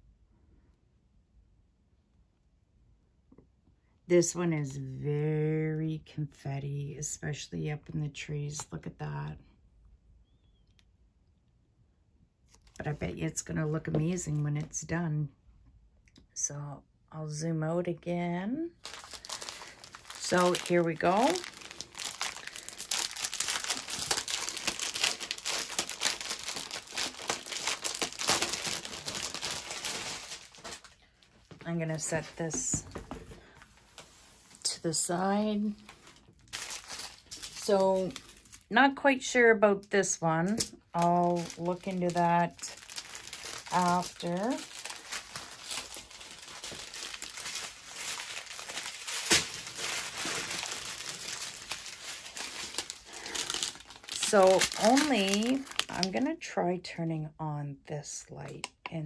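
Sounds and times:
plastic packaging crinkling: 18.7s - 34.7s, 35.5s - 38.7s, 40.1s - 56.3s.

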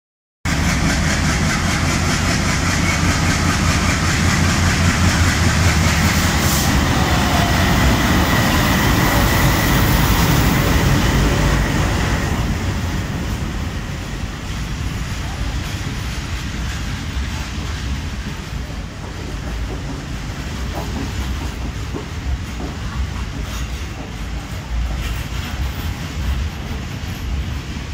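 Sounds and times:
diesel locomotive engine: 0.5s - 27.9s
train coaches rolling past: 0.5s - 27.9s.

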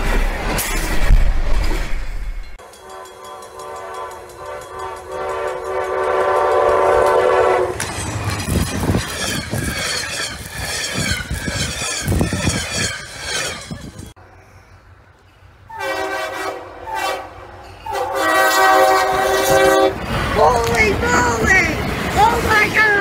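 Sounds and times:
train rushing past: 0.0s - 23.0s
locomotive air horn blast: 2.9s - 7.8s, 15.7s - 20.1s.

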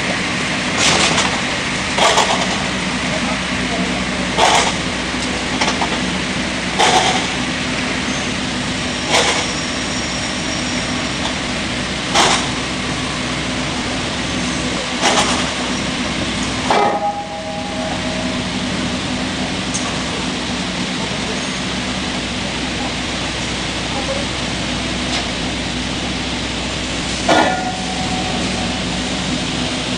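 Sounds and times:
sawmill machine drone: 0.0s - 29.9s
timber and steel clanks: 6.8s - 7.4s, 9.1s - 9.6s, 12.1s - 12.6s, 16.6s - 18.5s, 27.2s - 28.2s.

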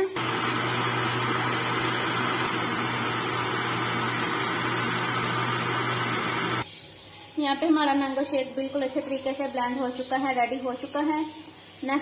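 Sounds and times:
blender motor running: 0.0s - 6.6s.

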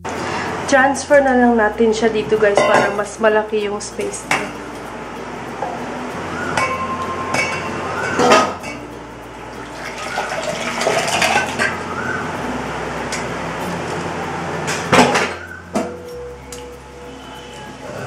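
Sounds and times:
pans clanking together: 2.6s - 3.1s, 6.6s - 8.8s, 14.7s - 16.0s.

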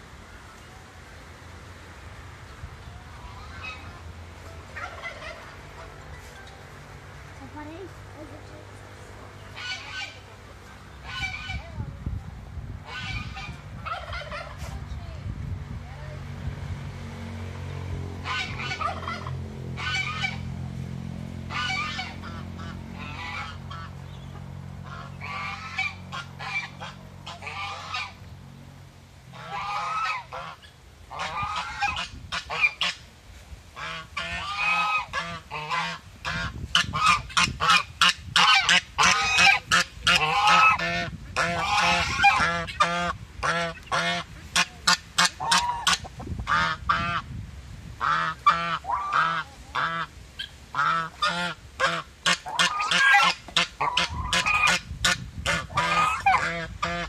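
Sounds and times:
geese honking: 3.1s - 6.3s, 9.2s - 11.8s, 12.8s - 14.7s, 18.2s - 20.6s, 21.4s - 28.2s, 29.3s - 33.0s, 33.8s - 47.3s, 48.0s - 57.0s.

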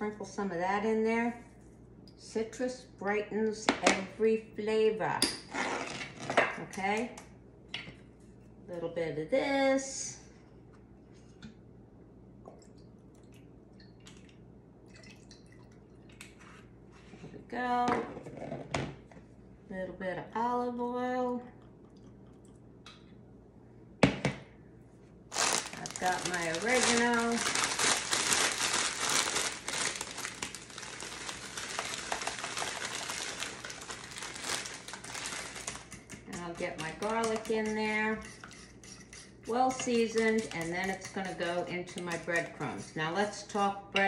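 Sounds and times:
oil pouring and dripping: 12.5s - 16.3s
dry leaves crackling: 25.3s - 35.9s
plastic bag crinkling: 25.3s - 36.0s.

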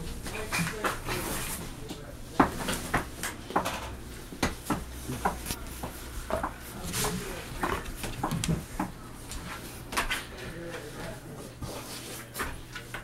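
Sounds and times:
knocks and taps on wood: 4.4s - 5.5s.

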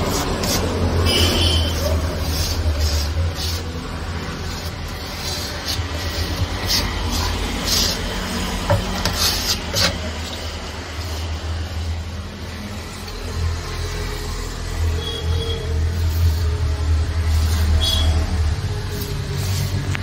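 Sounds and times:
putty knife scraping filler: 0.0s - 11.4s.

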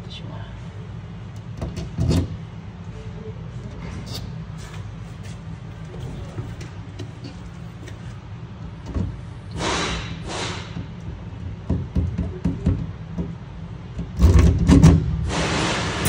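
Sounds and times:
air hissing from rivet gun: 9.5s - 10.8s.

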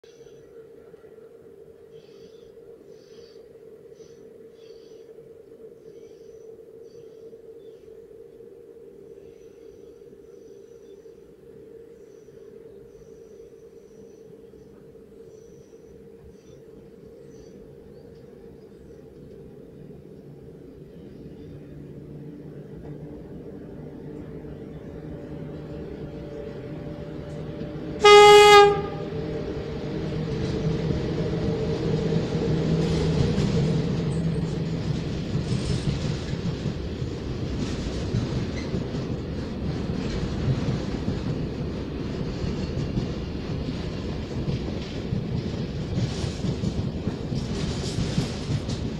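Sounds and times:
locomotive engine hum: 15.9s - 48.9s
train wheels clickety-clack: 21.3s - 48.9s
train horn blast: 27.8s - 29.6s.

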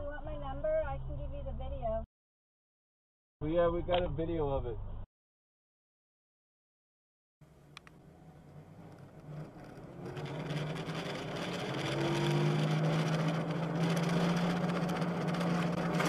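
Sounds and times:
car engine hum: 7.4s - 16.0s
tyre and road noise: 7.4s - 16.0s.

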